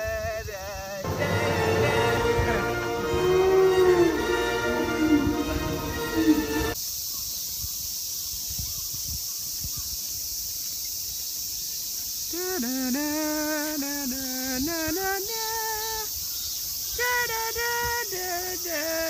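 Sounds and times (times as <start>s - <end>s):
insects droning: 0.0s - 19.0s
person humming: 12.3s - 15.9s.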